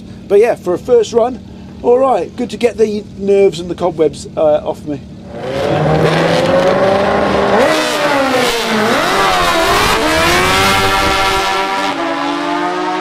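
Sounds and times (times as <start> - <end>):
motorcycle engines revving: 4.4 - 13.0.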